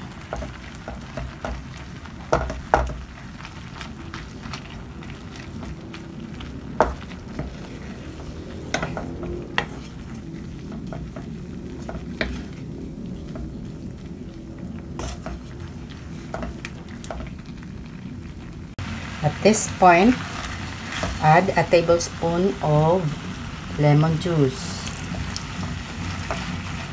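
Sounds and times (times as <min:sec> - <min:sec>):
sugar mixture sizzling: 0:00.0 - 0:26.9.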